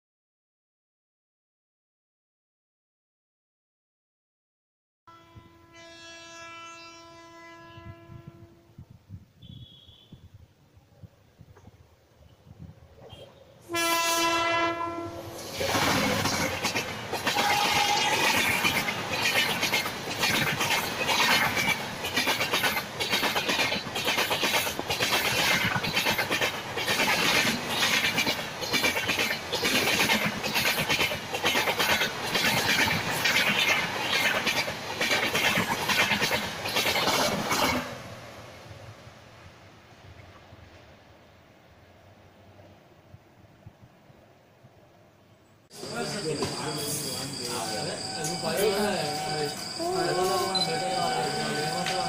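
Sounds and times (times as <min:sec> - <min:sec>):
train horn: 0:05.1 - 0:08.8, 0:13.1 - 0:16.4, 0:17.3 - 0:18.5, 0:47.3 - 0:52.0
train wheels clacking: 0:15.4 - 0:37.9, 0:45.9 - 0:52.0.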